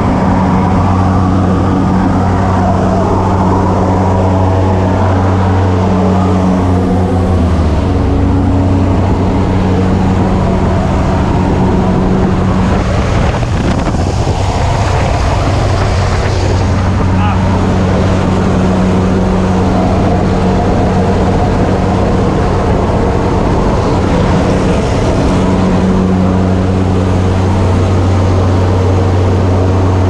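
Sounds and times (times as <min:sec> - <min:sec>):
propeller engines droning: 0:00.0 - 0:30.0
rush of air: 0:00.0 - 0:30.0.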